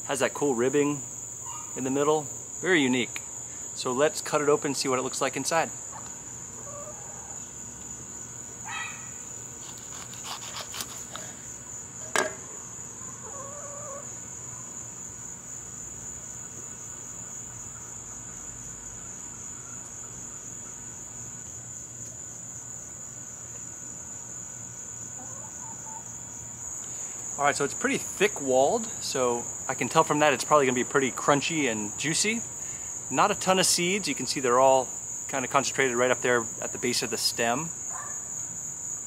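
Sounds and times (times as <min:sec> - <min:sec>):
high-pitched insect chorus: 0:00.0 - 0:39.0
knife cutting on wooden board: 0:09.6 - 0:11.3.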